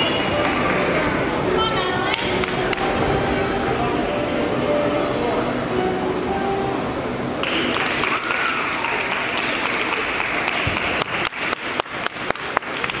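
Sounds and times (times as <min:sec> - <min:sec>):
audience applause: 0:07.4 - 0:13.0.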